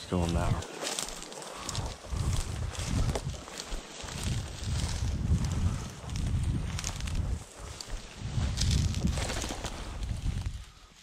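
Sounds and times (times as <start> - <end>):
footsteps through field: 0.0 - 11.0
rustling through vegetation: 0.0 - 11.0
wind buffeting microphone: 1.5 - 10.9.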